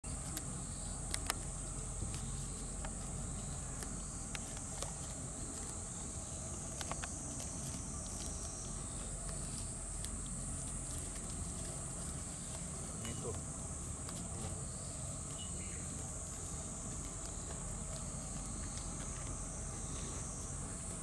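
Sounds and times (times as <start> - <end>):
goats cropping grass: 0.0 - 21.0
insects droning: 0.0 - 21.0.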